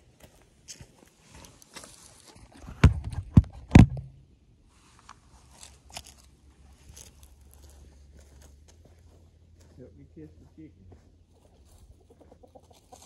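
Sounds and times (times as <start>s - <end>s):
rustling and scraping on leaves: 1.2s - 2.5s, 4.8s - 9.2s, 11.3s - 13.0s
thumps on microphone: 2.6s - 4.1s
dry leaves crunching: 5.3s - 9.8s, 10.4s - 13.0s.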